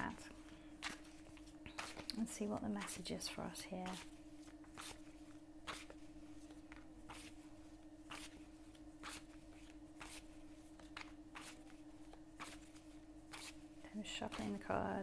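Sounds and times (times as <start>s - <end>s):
steady low hum: 0.0s - 15.0s
cards shuffling: 0.8s - 2.2s, 3.8s - 7.4s, 8.1s - 8.4s, 9.0s - 13.6s.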